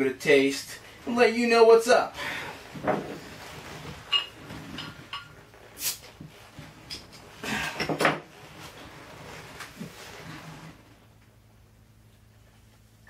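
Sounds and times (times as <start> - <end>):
glass bottle clinking: 4.1 - 5.3.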